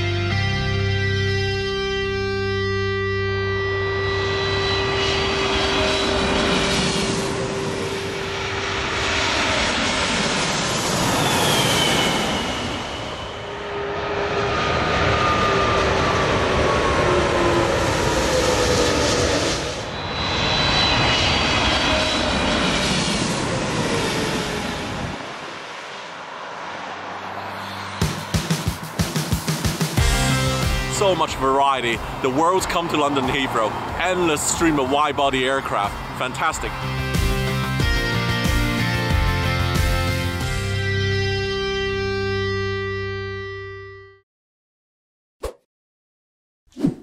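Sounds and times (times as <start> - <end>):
jet engine roar overhead: 1.7 - 40.5
music with steady drum beat: 28.0 - 31.0.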